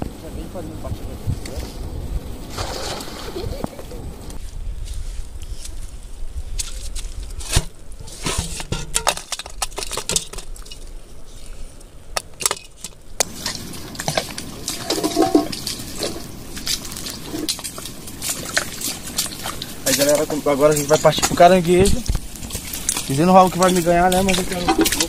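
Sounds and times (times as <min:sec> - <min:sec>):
water splashing and sloshing: 0:02.4 - 0:04.4, 0:12.3 - 0:25.0.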